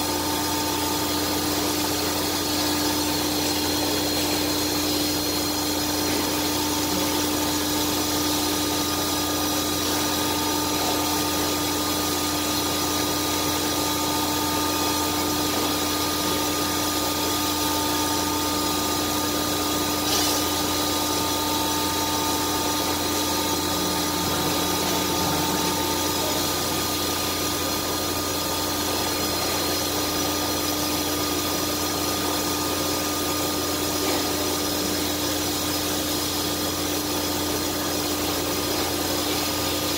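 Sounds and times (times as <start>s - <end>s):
cnc router running: 0.0s - 39.9s
high whining tones: 22.4s - 28.0s.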